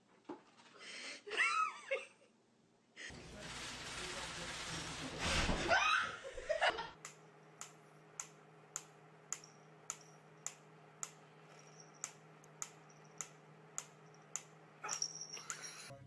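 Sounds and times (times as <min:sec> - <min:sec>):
mechanical metronome ticking: 0:07.0 - 0:11.2, 0:11.8 - 0:14.6.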